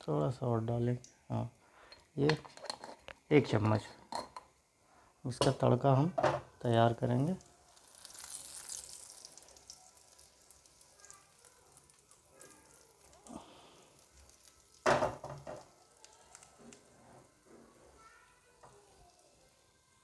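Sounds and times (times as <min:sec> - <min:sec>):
oil sizzling in a pan: 0:00.7 - 0:20.0.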